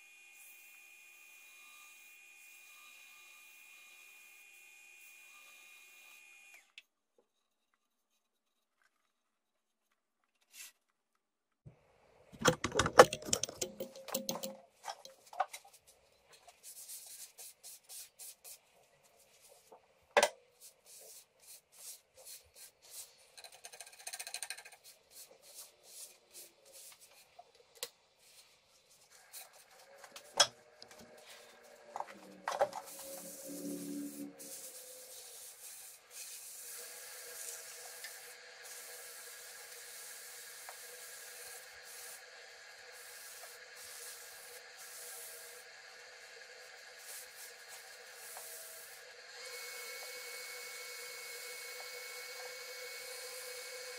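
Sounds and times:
clatter of knocks and clicks: 12.4s - 15.6s
high machine whine: 30.9s - 34.9s.

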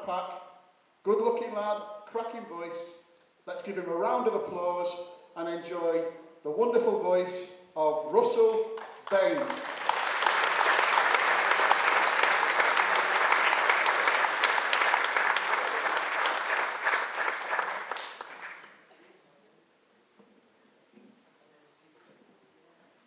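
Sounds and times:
audience applauding: 8.8s - 18.9s.

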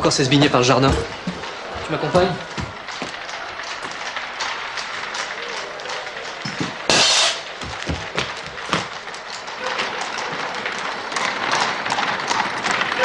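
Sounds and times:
agitated crowd voices: 0.0s - 13.0s
scattered knocks: 0.0s - 13.0s
sharp crash: 6.9s - 7.6s.

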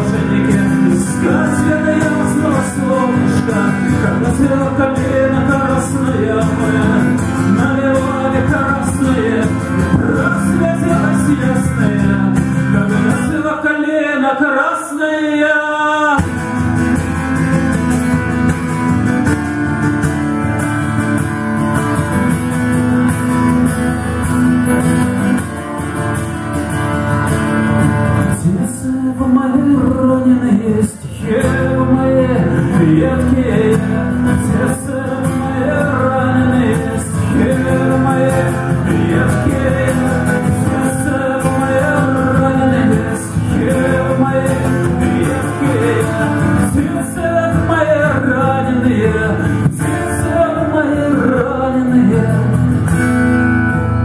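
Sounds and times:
man singing: 0.0s - 17.5s, 27.4s - 53.1s
acoustic guitar strumming: 0.0s - 54.0s.

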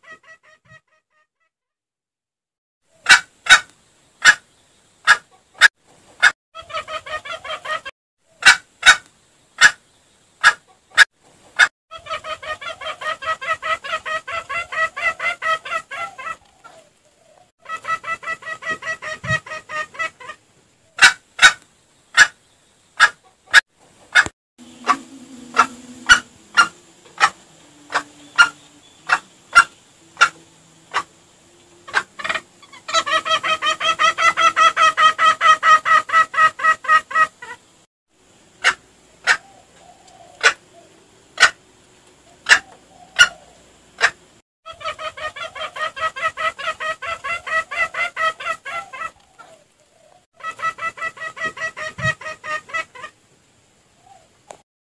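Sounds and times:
junglefowl clucking: 0.0s - 0.9s, 3.0s - 4.4s, 5.0s - 9.8s, 10.4s - 21.6s, 22.2s - 22.4s, 23.0s - 37.6s, 38.6s - 41.6s, 42.2s - 53.2s.

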